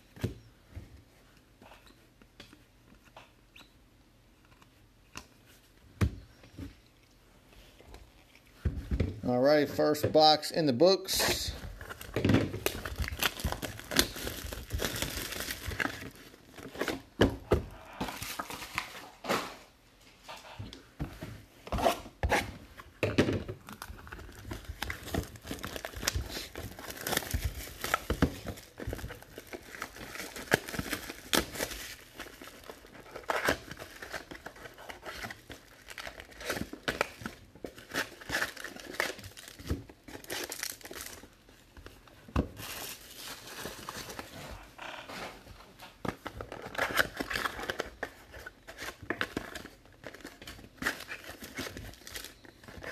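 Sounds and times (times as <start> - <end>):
plastic wrapping crinkling and tearing: 11.4 - 16.9, 23.6 - 45.1, 46.2 - 52.9.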